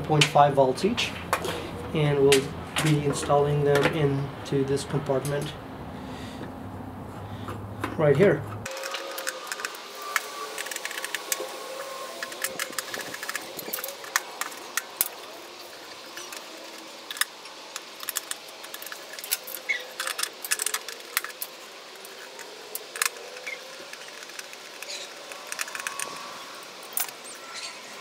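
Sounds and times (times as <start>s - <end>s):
plastic clicks and rattles: 8.7s - 15.3s, 16.0s - 27.3s.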